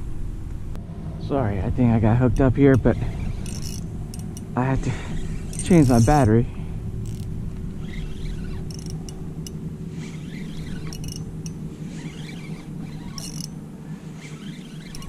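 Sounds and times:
steady low rumble: 0.0 - 14.2
fishing reel squeaks and clicks: 2.8 - 6.4, 7.0 - 15.0.

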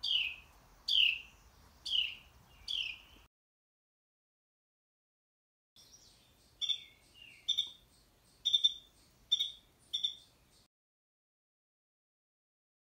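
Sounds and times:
wren calling: 0.0 - 3.3, 5.8 - 10.7.

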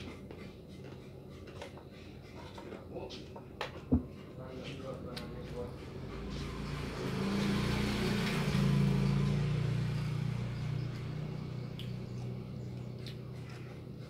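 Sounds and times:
vehicle engine passing: 5.2 - 14.0.

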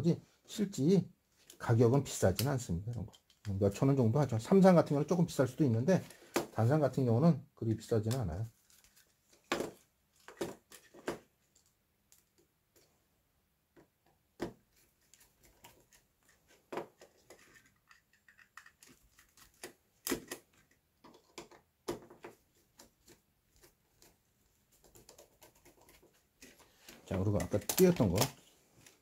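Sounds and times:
screwdriver clicking and scraping: 17.0 - 21.6.

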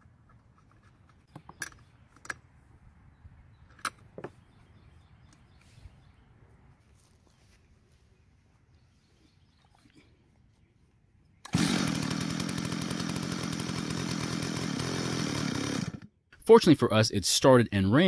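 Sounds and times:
chainsaw engine running: 11.5 - 16.1.

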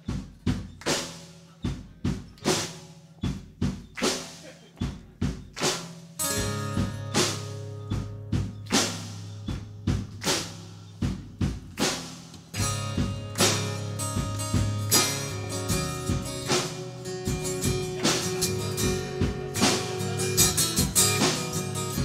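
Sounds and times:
drum kit beating: 0.0 - 22.0
held low bass and guitar note: 12.6 - 22.0.

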